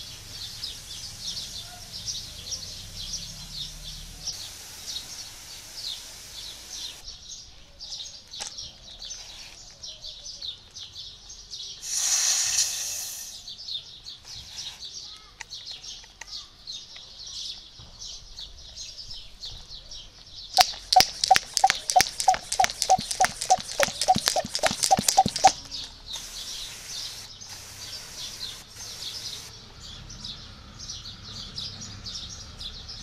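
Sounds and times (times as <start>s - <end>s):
faint hiss of spray mist: 0.0s - 7.0s, 11.8s - 13.5s, 26.1s - 29.6s
air hissing out of sprayer: 4.2s - 7.0s, 11.8s - 13.5s, 26.1s - 29.5s
birds chirping: 13.4s - 33.0s
pump plunger strokes: 20.6s - 25.8s.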